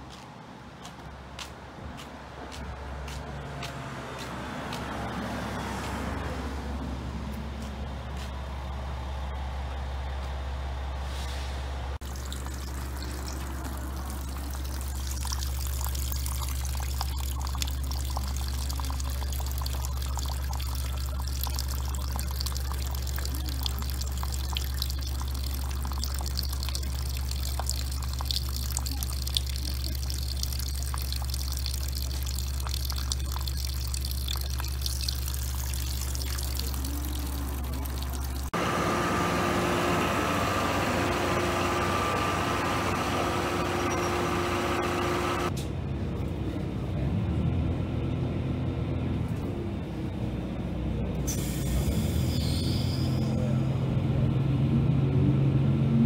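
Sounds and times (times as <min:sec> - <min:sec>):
water pouring into plastic bottle: 0:12.0 - 0:38.6
water splashing on pebbles: 0:12.0 - 0:38.6.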